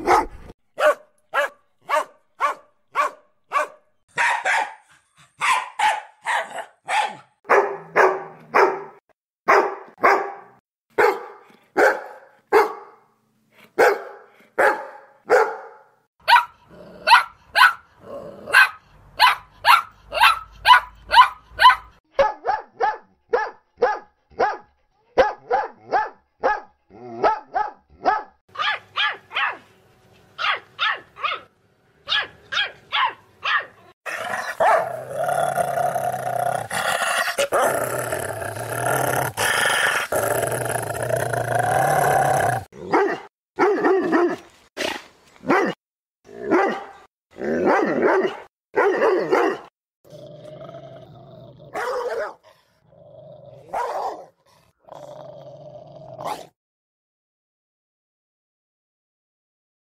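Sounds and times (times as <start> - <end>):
dog barking: 0.0 - 13.1, 13.8 - 17.9, 18.5 - 29.6, 30.4 - 31.5, 32.1 - 35.0, 42.8 - 44.4, 45.4 - 45.8, 46.5 - 49.7, 51.7 - 52.4, 53.7 - 54.4.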